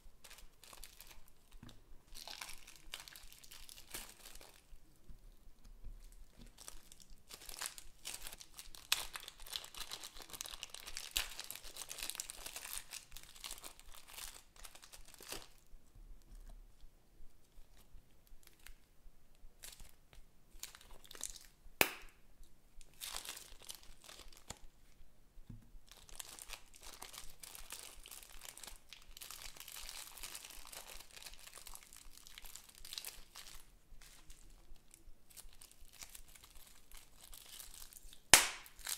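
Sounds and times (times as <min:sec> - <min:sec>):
bead slime crackling: 0:00.2 - 0:04.7
plastic bag crinkling: 0:00.2 - 0:04.7, 0:06.4 - 0:15.6, 0:22.9 - 0:24.6, 0:25.9 - 0:34.4, 0:35.3 - 0:38.9.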